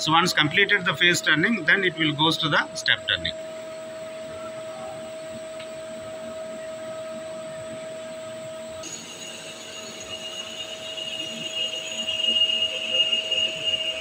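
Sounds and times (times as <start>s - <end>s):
high-pitched whine: 0.0s - 14.0s
lathe machine hum: 8.0s - 14.0s.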